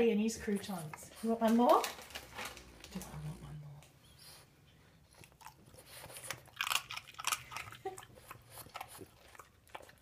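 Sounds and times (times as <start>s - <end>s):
dog crunching a crouton: 1.4s - 3.1s, 5.1s - 10.0s.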